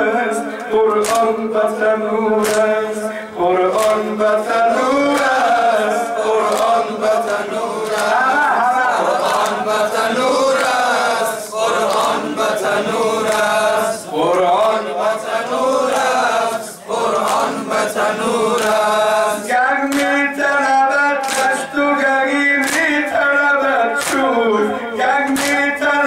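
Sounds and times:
men chanting: 0.0s - 26.0s
hands slapping chests: 0.9s - 1.4s, 2.4s - 2.8s, 3.7s - 4.1s, 6.4s - 8.3s, 9.1s - 10.8s, 11.7s - 13.6s, 17.1s - 20.2s, 21.2s - 21.7s, 22.6s - 23.0s, 24.0s - 24.3s, 25.3s - 25.7s.

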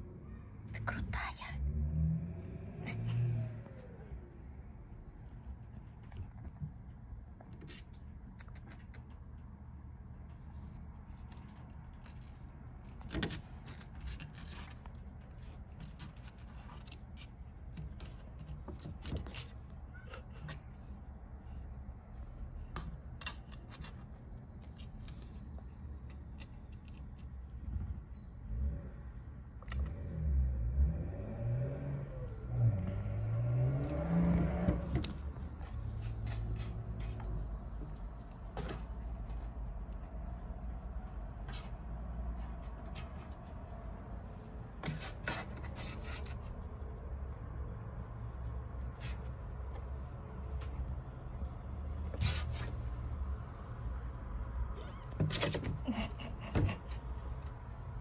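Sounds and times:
claws scratching on plywood: 11.1s - 20.8s, 44.8s - 46.6s, 52.1s - 52.9s.

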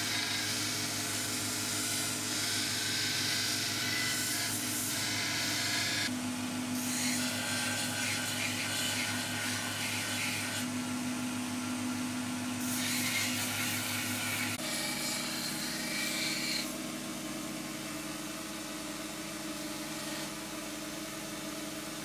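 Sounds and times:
belt grinder running: 0.0s - 6.1s.

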